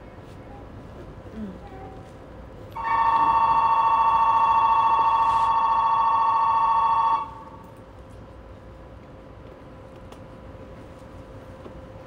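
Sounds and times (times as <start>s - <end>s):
electronic two-tone buzzer: 2.8s - 7.4s.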